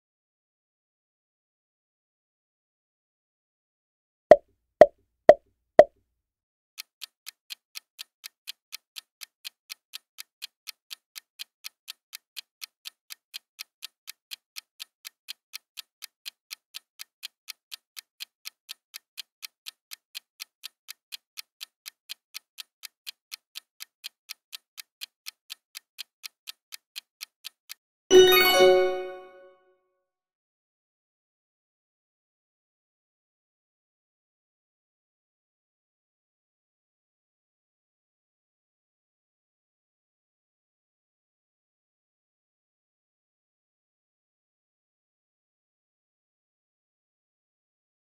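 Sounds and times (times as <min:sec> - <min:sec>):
clock ticking: 0:06.8 - 0:29.4
ringing bell-like chime: 0:28.1 - 0:29.5.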